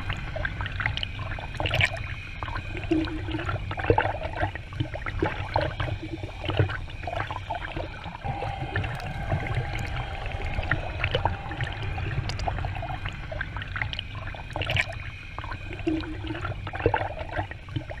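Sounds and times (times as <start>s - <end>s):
river water rushing and gurgling: 0.0s - 18.0s
low rumble: 8.2s - 16.8s.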